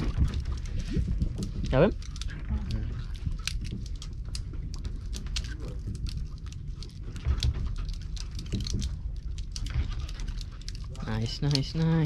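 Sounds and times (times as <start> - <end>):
light rain pattering: 0.0 - 12.0
low rumble: 0.0 - 12.0.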